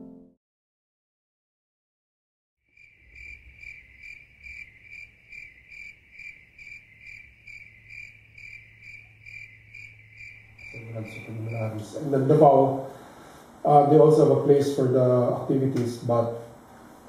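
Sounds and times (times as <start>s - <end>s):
cricket chirping: 2.7s - 12.4s
low steady hum: 8.1s - 17.0s.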